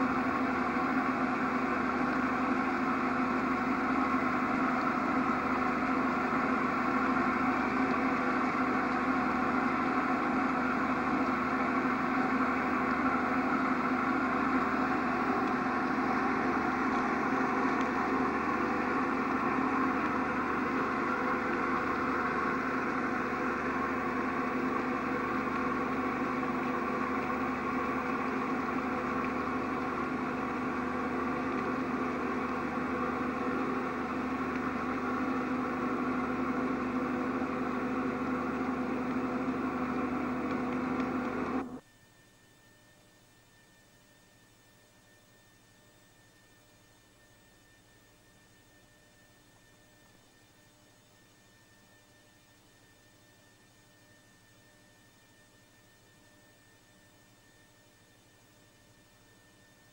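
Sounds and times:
steady engine hum: 0.0 - 41.8.

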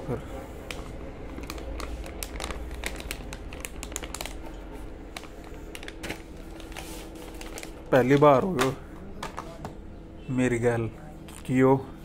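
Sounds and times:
plastic pouch crinkling: 0.6 - 8.7.

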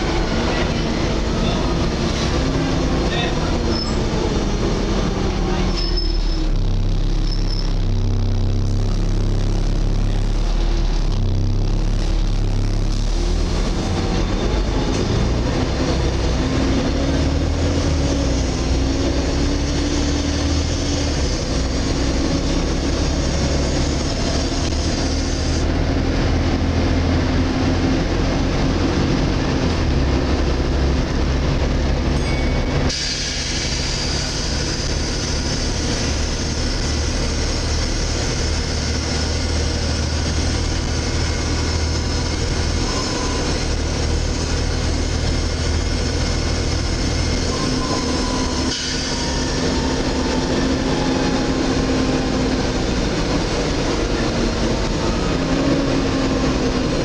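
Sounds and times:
bus engine drone: 0.0 - 57.0.

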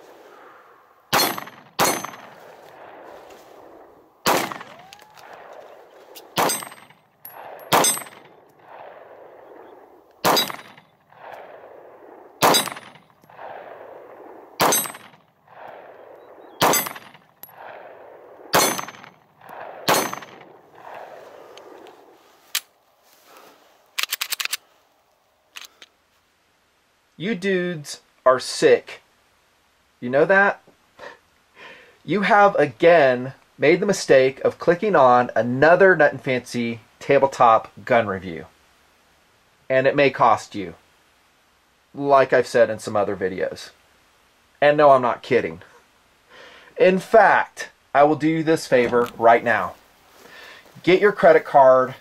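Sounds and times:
pistol shots: 1.1 - 3.1, 4.2 - 21.1
metallic ring of steel target: 1.2 - 2.4, 6.4 - 8.3, 10.3 - 10.8, 12.4 - 13.0, 14.6 - 15.2, 16.6 - 17.6, 18.6 - 19.1, 19.9 - 20.4.

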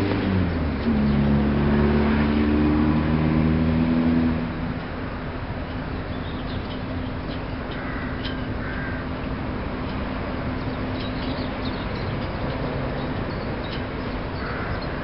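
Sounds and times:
steady low hum: 3.6 - 15.0.

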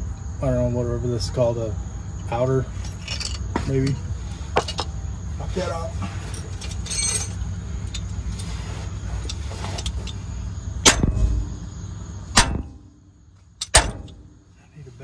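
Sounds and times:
low steady rumble: 0.0 - 15.0
hammer blows on metal: 10.8 - 11.7, 12.3 - 13.0.

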